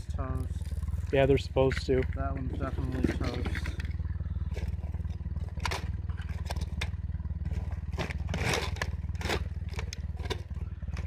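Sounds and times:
engine droning: 0:00.0 - 0:11.0
hard drive pieces clattering: 0:05.5 - 0:11.0.

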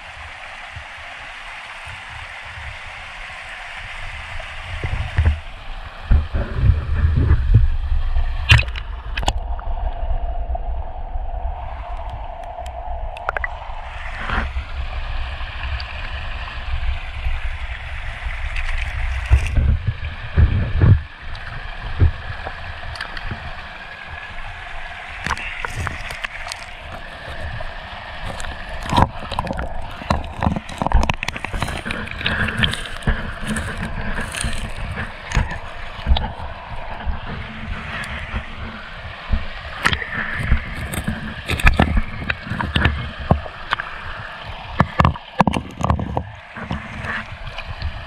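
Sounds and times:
creek water gurgling: 0:00.0 - 0:48.0
low rumble: 0:05.4 - 0:21.1.

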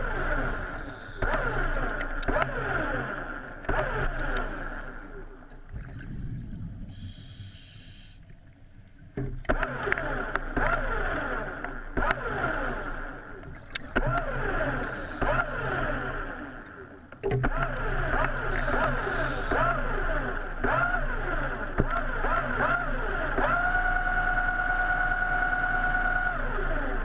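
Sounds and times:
regulator inhale hiss: 0:00.7 - 0:01.6, 0:06.9 - 0:08.3, 0:18.6 - 0:19.6
exhaled bubbles burbling: 0:03.7 - 0:07.2.

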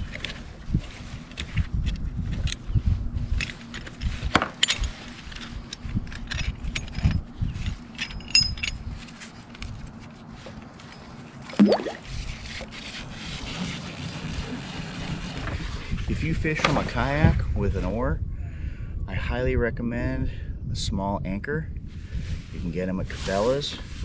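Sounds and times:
metal anchor clinking and knocking: 0:04.3 - 0:09.1.

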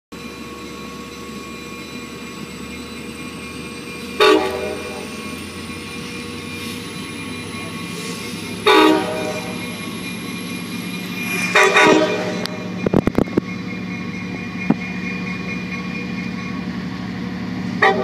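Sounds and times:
train approaching: 0:00.1 - 0:18.0
locomotive air horn blasts: 0:04.2 - 0:05.1, 0:08.6 - 0:09.6, 0:11.3 - 0:12.8, 0:17.8 - 0:18.0.

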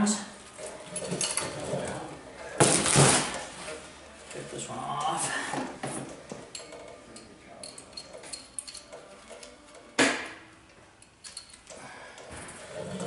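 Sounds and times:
metallic clinks and rattles: 0:00.6 - 0:02.1, 0:06.4 - 0:09.9, 0:11.0 - 0:11.8.

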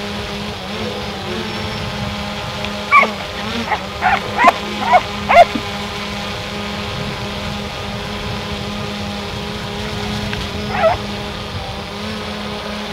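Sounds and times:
drone propellers buzzing: 0:00.0 - 0:12.9
dog barking: 0:02.9 - 0:05.6, 0:10.7 - 0:11.0.

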